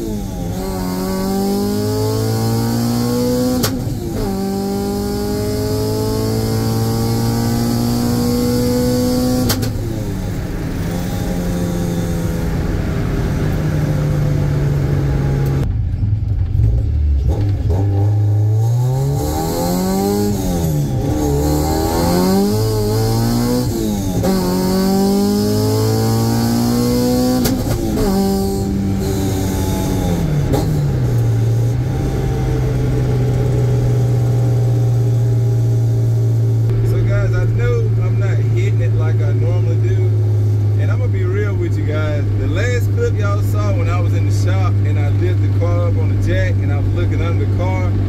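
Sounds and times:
car engine revving: 0:00.0 - 0:48.0.

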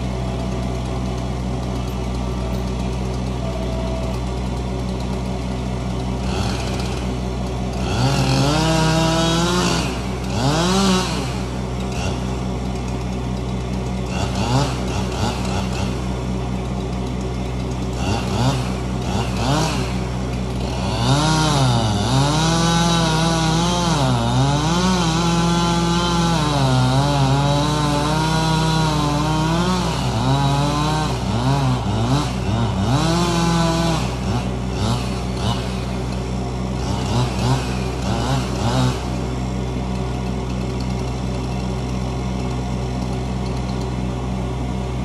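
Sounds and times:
chainsaw cutting wood: 0:00.0 - 0:45.0
engine idle hum: 0:00.0 - 0:45.0.

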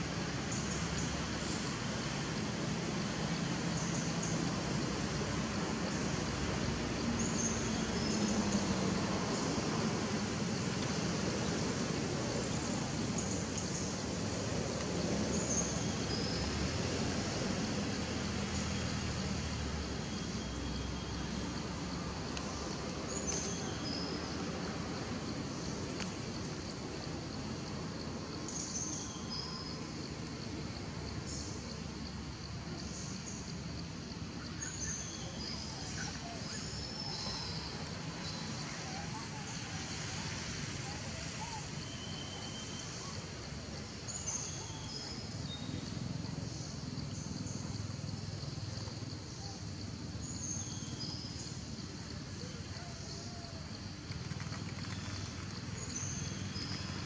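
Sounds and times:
insects buzzing: 0:00.0 - 0:57.0.

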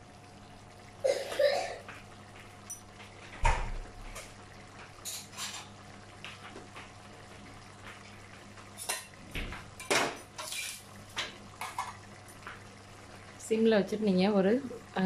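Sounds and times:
faint steady hum: 0:00.0 - 0:15.0
metal utensil scraping pot: 0:10.4 - 0:10.9.

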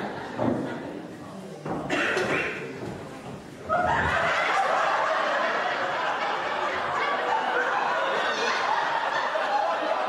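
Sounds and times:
audience laughing: 0:00.0 - 0:00.9, 0:03.7 - 0:10.0.

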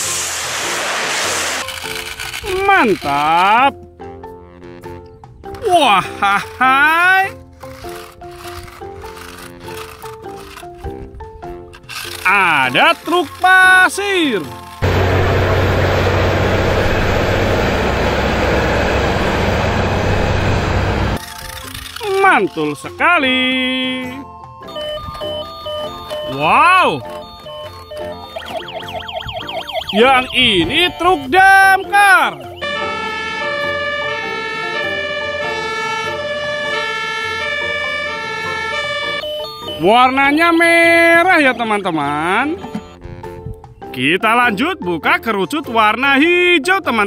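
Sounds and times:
dump truck diesel engine: 0:14.5 - 0:21.2
fire engine siren: 0:14.8 - 0:21.2, 0:24.6 - 0:40.9.

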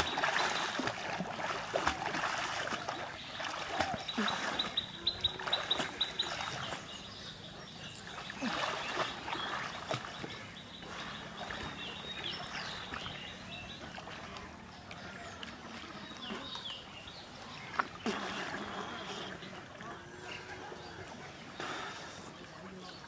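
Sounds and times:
water splashing around swimmer: 0:00.0 - 0:23.0
bird chirps: 0:03.2 - 0:13.9.

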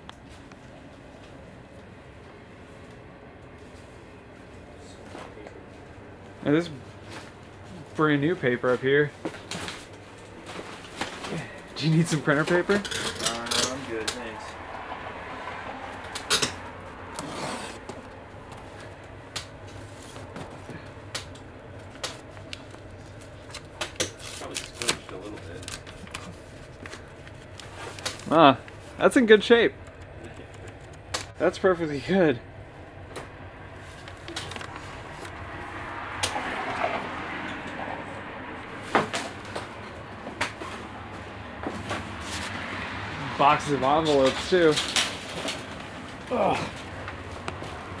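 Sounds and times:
paper and cardboard rustling: 0:21.8 - 0:29.0, 0:33.8 - 0:35.4.

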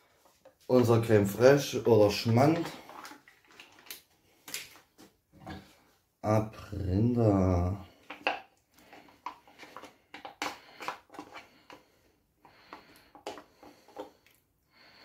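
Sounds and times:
wooden spoon scraping a tub: 0:00.7 - 0:03.9, 0:07.8 - 0:14.3.

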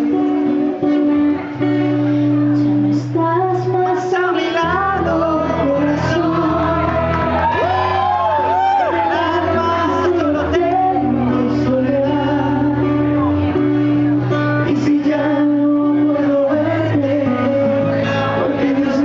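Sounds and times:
acoustic guitar strumming: 0:00.0 - 0:19.0
woman singing a ballad: 0:02.8 - 0:07.6.

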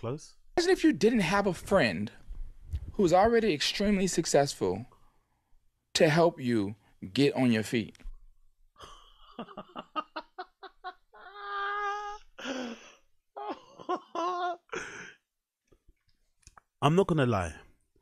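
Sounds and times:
man laughing: 0:08.8 - 0:11.8, 0:13.4 - 0:14.9.

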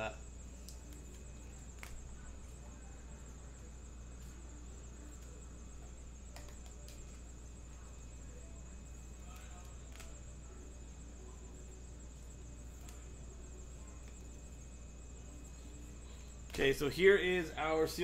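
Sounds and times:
steady low hum: 0:00.0 - 0:18.0
trading cards clicking: 0:06.3 - 0:07.2, 0:09.3 - 0:10.3.

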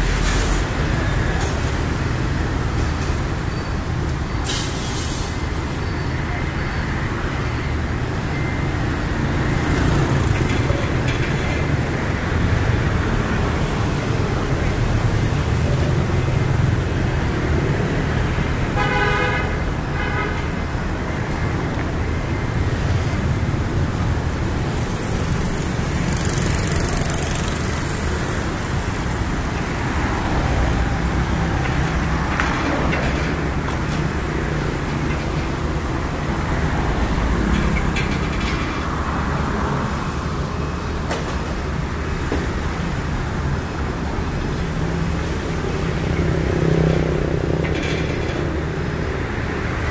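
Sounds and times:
traffic rumble: 0:00.0 - 0:49.9
vehicle horn toots: 0:18.8 - 0:20.4.

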